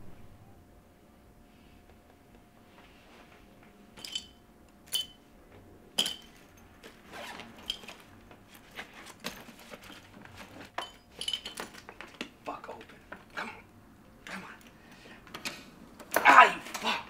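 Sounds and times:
metallic zipper clinks: 0:04.0 - 0:05.2, 0:06.0 - 0:10.1.

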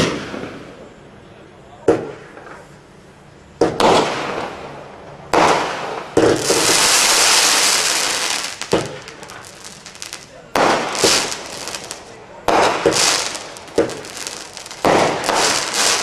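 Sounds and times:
firework bangs with crackling: 0:00.0 - 0:00.9, 0:01.9 - 0:02.7, 0:03.6 - 0:16.0
hissing spray of sparks: 0:12.8 - 0:16.0.

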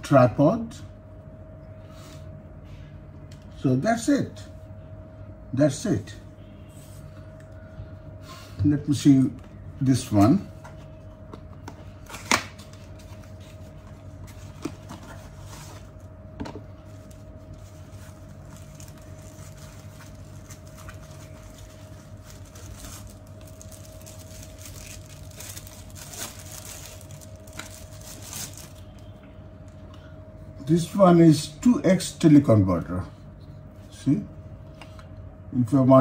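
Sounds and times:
faint hum: 0:00.0 - 0:36.0
plastic bag rustling: 0:16.8 - 0:29.0.

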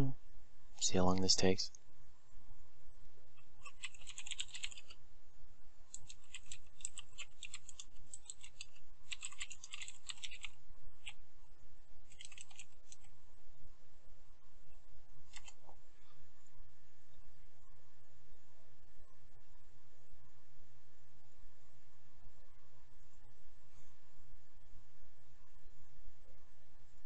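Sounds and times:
typing on computer keyboard: 0:03.6 - 0:05.0, 0:05.9 - 0:11.2, 0:12.1 - 0:13.1, 0:15.3 - 0:15.6.

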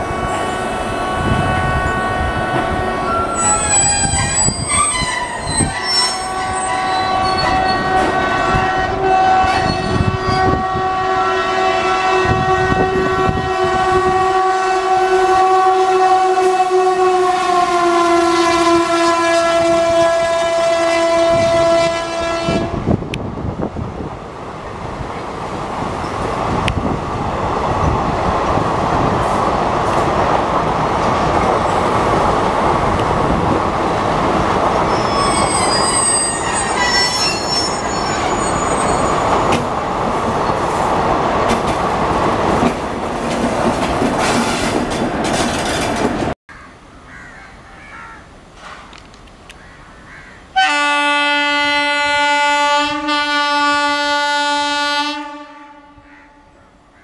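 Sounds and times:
locomotive air horn blast: 0:00.0 - 0:23.0, 0:34.9 - 0:39.4, 0:50.6 - 0:56.4
train wheels rumbling and clacking: 0:02.1 - 0:10.7, 0:22.8 - 0:46.4, 0:48.6 - 0:49.5
high wheel squeal: 0:03.1 - 0:08.1, 0:34.8 - 0:39.6.

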